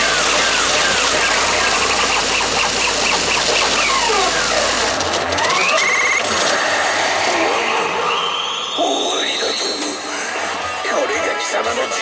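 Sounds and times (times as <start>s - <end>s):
fast electronic beeps: 0.0s - 6.3s
fast warbling tone: 0.0s - 6.3s.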